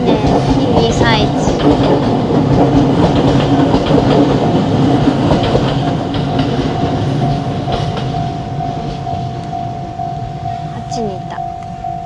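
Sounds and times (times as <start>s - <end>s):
train wheels clattering: 0.0s - 9.6s
steady higher tone: 6.3s - 12.0s.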